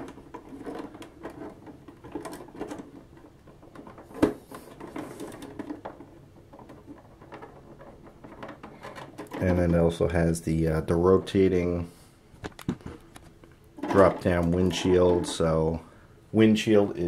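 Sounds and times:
plastic clicks and rubbing: 0:00.0 - 0:10.0, 0:12.4 - 0:15.5.

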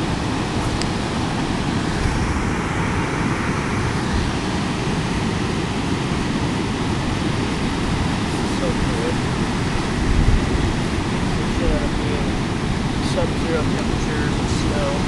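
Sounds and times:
ocean surf on beach: 0:00.0 - 0:15.0.

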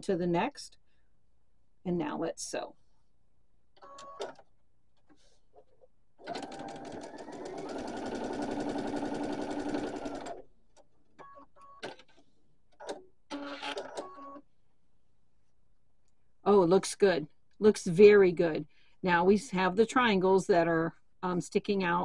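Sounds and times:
sewing machine stitching: 0:06.2 - 0:10.4.

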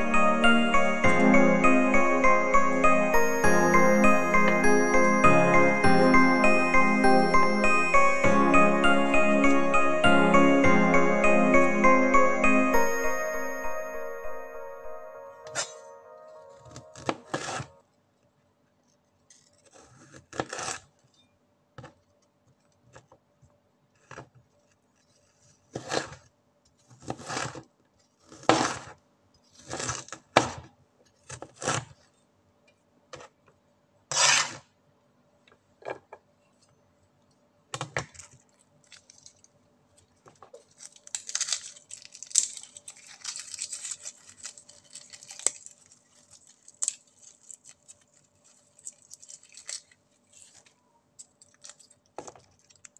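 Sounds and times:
garlic skin crackling rustle: 0:40.5 - 0:52.9.

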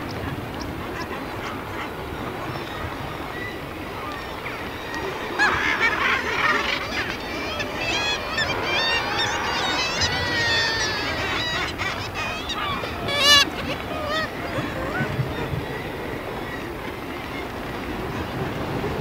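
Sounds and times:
background noise wash: 0:00.0 - 0:19.0
seabirds calling: 0:00.0 - 0:19.0
quick wavering bird calls: 0:06.1 - 0:14.7.

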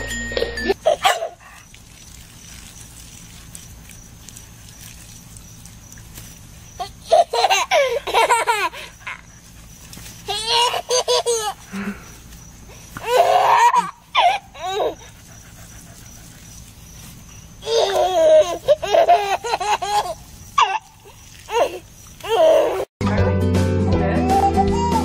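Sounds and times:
toddler laughing: 0:00.4 - 0:01.4, 0:06.8 - 0:09.3, 0:10.3 - 0:11.7, 0:13.0 - 0:15.4, 0:17.6 - 0:22.9.

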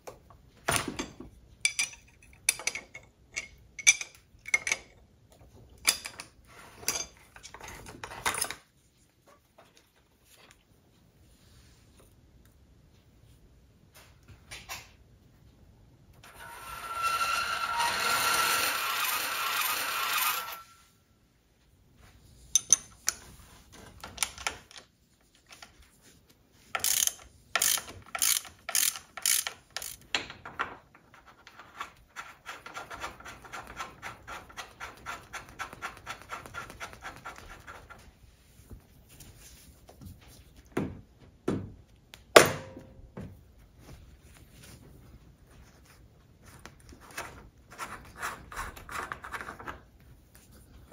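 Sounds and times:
socket ratchet wrench clicking: 0:26.8 - 0:30.0.

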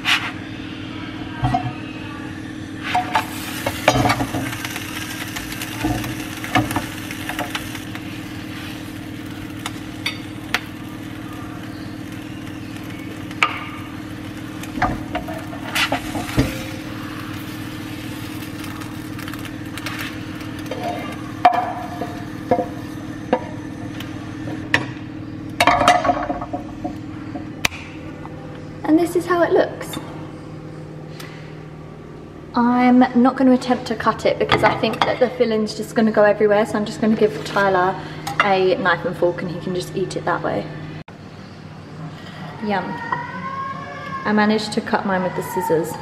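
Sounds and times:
steady hum: 0:00.0 - 0:46.0
wrap sizzling in a pan: 0:02.8 - 0:24.5.

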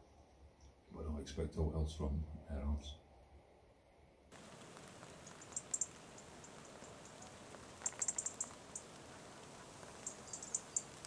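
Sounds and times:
faint steady hiss: 0:00.0 - 0:11.0
robin ticking calls: 0:04.4 - 0:11.0.

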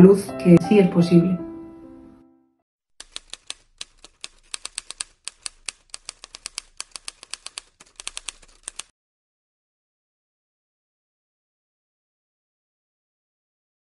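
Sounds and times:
typewriter key strikes: 0:03.0 - 0:08.9.

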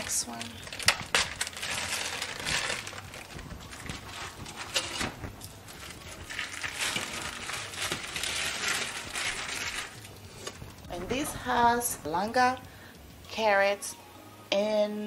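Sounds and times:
plastic bag crinkling: 0:00.0 - 0:11.3.

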